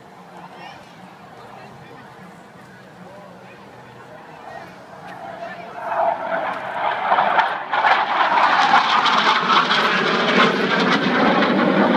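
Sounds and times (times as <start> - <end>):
military jet flying overhead: 3.8 - 11.9.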